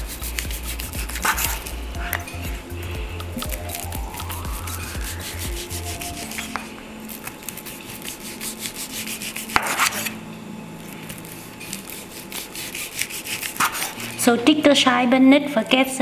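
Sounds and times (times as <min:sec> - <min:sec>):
knife sawing through meat: 0:00.0 - 0:01.7, 0:07.2 - 0:10.2, 0:11.2 - 0:14.2
blade hitting cutting board: 0:09.5 - 0:10.2, 0:13.0 - 0:14.0.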